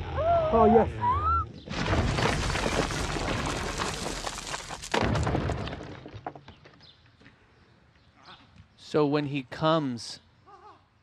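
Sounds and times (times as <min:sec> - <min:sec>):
explosion boom with crackling: 0:01.7 - 0:06.1.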